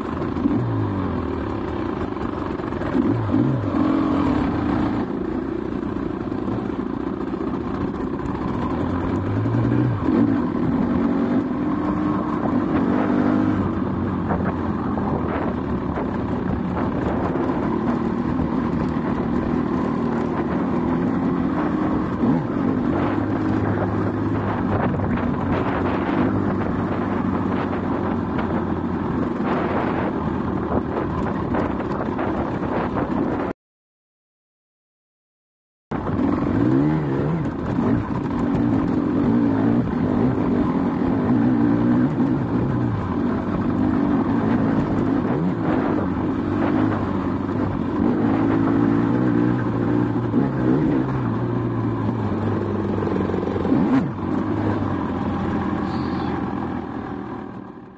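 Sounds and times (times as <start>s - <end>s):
dirt bike engine revving: 2.8s - 5.1s, 8.5s - 16.1s, 16.7s - 28.0s, 36.1s - 51.6s, 52.4s - 56.5s.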